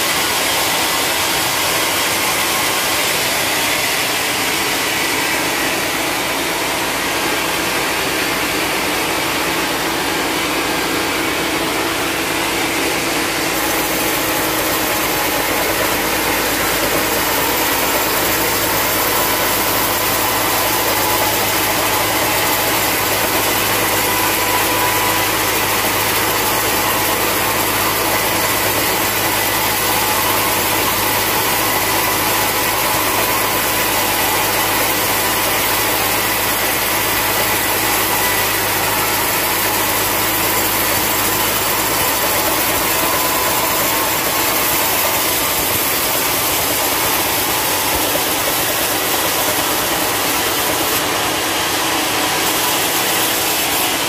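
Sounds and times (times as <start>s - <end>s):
band saw cutting log: 0.0s - 54.0s
sawmill motor running: 0.0s - 54.0s.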